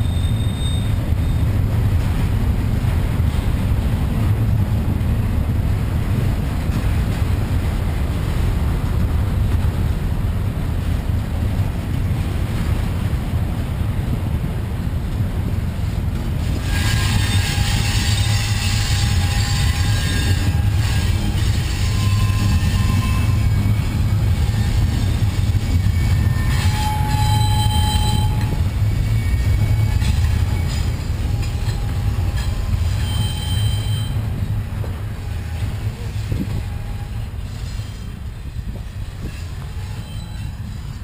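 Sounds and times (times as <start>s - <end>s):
high-pitched train screech: 0.0s - 1.5s, 16.5s - 34.4s, 35.0s - 41.0s
freight train rumbling past: 0.0s - 41.0s.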